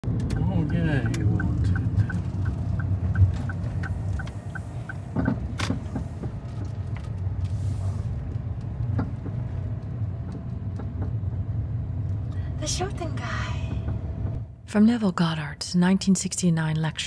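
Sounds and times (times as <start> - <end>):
car road and engine rumble: 0.0 - 17.0
light regular ticking: 0.1 - 5.4.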